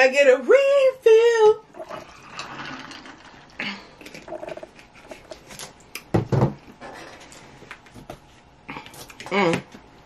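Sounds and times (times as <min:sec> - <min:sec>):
drink gurgling from bottle: 0:01.7 - 0:04.7.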